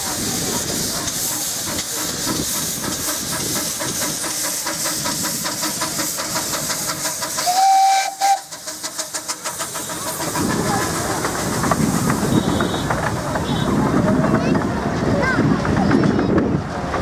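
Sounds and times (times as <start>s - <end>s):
steam locomotive hissing: 0.0s - 17.0s
steam whistle blast: 7.4s - 8.5s.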